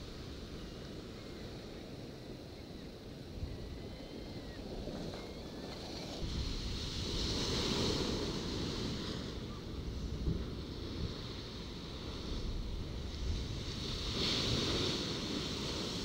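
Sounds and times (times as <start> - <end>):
wind buffeting microphone: 0.0 - 16.0
waves crashing on sea wall: 6.2 - 16.0.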